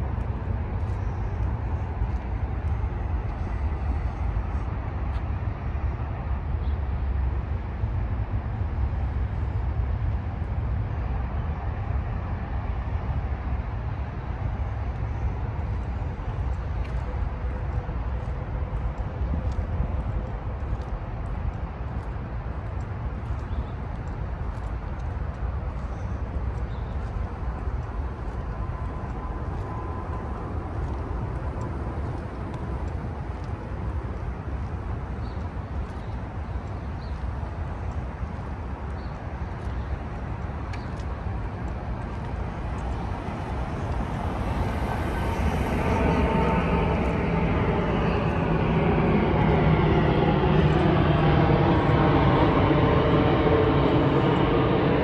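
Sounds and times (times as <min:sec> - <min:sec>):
traffic rumble: 0:00.0 - 0:55.0
vehicle engine approaching: 0:42.5 - 0:55.0.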